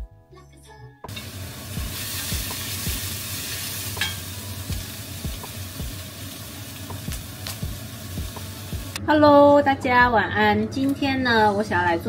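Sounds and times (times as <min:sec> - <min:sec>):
food sizzling in a frying pan: 0:01.1 - 0:09.0.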